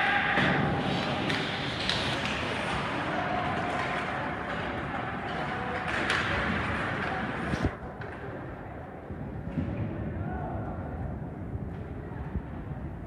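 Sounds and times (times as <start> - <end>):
skates scraping on ice: 0.4 - 7.8
clacks of sticks and puck: 0.4 - 8.5.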